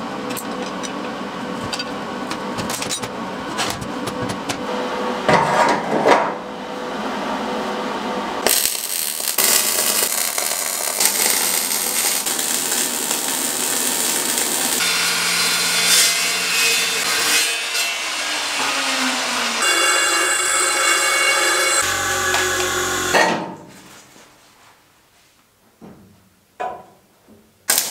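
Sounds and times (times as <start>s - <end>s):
welding arc crackling and hissing: 8.4s - 17.0s
power tool noise: 8.4s - 23.5s.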